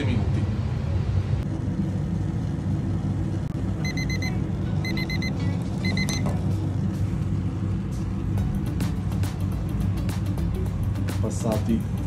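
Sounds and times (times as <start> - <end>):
steady low rumble: 0.0 - 12.0
kitchen timer beeping: 3.8 - 6.3.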